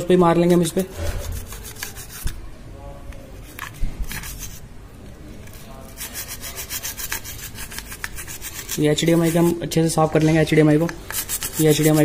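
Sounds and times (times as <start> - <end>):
brush scrubbing circuit board: 0.8 - 2.3, 5.6 - 9.6, 11.1 - 12.0.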